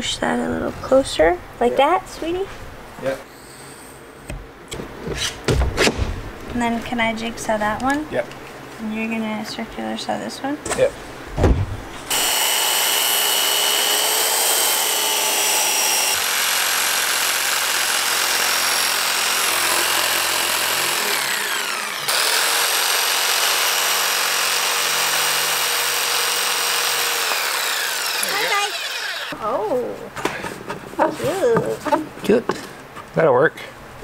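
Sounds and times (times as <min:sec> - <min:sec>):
circular saw cutting wood: 0:12.1 - 0:29.4
jigsaw cutting wood: 0:12.1 - 0:29.4.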